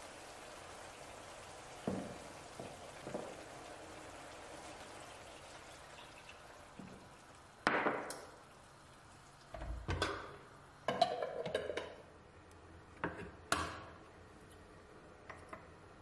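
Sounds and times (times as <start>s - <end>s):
faint sizzle from pan: 0.0s - 12.2s.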